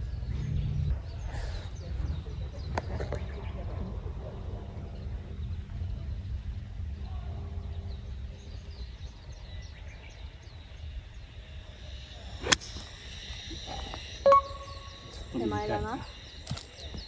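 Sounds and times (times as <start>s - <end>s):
birds chirping: 0.0s - 17.0s
low wind rumble: 0.0s - 17.0s
golf club striking ball: 12.4s - 12.9s.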